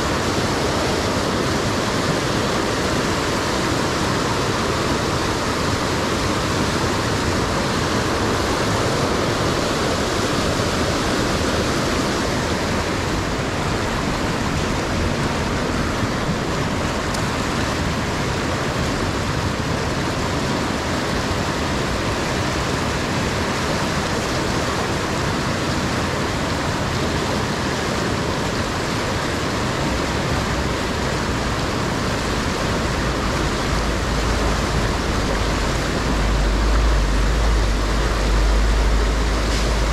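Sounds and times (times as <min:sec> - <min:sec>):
water rushing over rocks: 0:00.0 - 0:39.9
low rumble: 0:31.4 - 0:39.9.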